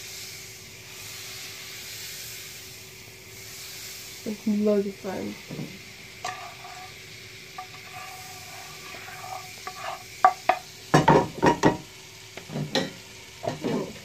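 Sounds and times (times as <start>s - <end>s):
faint frying sizzle: 0.0s - 14.0s
utensil stirring batter: 6.2s - 7.0s, 7.6s - 10.6s
utensil knocking against bowl: 9.0s - 11.8s.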